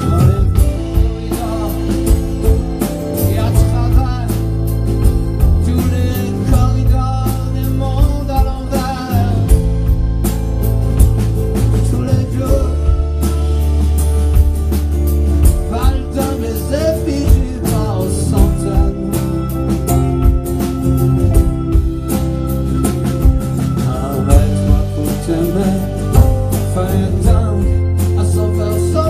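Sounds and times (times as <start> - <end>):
man singing: 0.0 - 10.0, 11.6 - 13.8, 15.5 - 19.9, 23.5 - 29.0
live rock band playing: 0.0 - 29.0.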